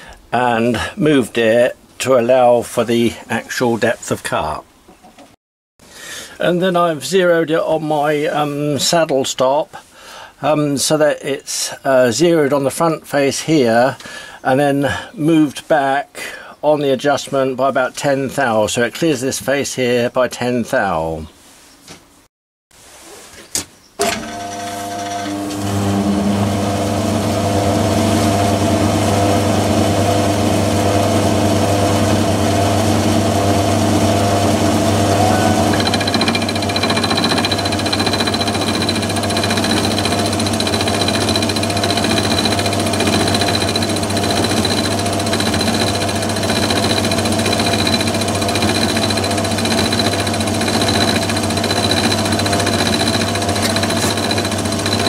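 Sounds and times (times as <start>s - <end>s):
lathe motor humming: 25.3s - 30.4s, 31.6s - 55.0s
thin high whine: 35.0s - 37.5s.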